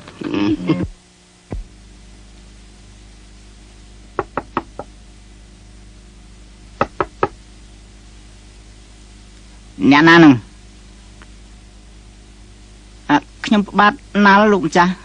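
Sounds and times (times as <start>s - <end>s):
faint steady hum: 0.0s - 15.0s
knocking on a door: 4.2s - 4.9s, 6.8s - 7.4s.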